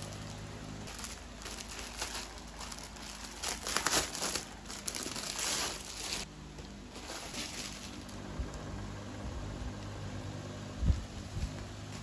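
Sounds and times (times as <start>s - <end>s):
plastic bag crinkling: 0.0s - 6.3s, 6.9s - 8.2s.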